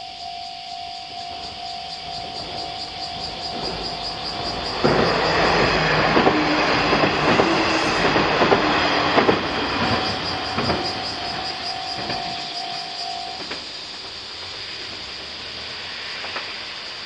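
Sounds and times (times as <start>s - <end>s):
train passing: 0.9s - 17.0s
wheels clacking over rail joints: 1.3s - 16.6s.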